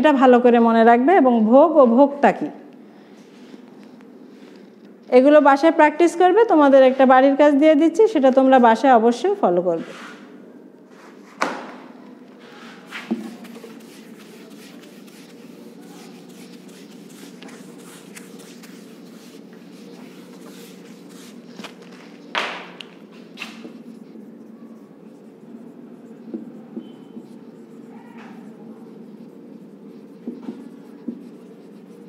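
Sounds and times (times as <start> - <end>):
whiteboard being wiped: 9.8 - 10.3, 12.4 - 32.0
marker writing on whiteboard: 12.4 - 32.0.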